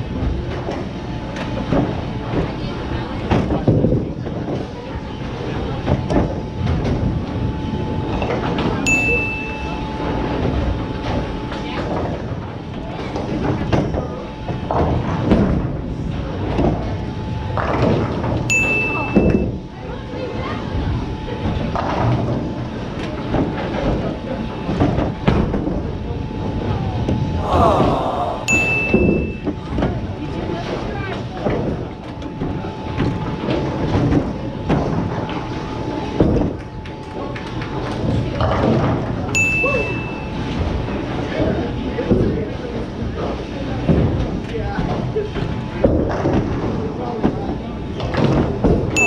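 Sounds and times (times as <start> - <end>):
steady high tone: 8.9 - 9.9, 27.4 - 29.5
background voices: 27.4 - 29.0.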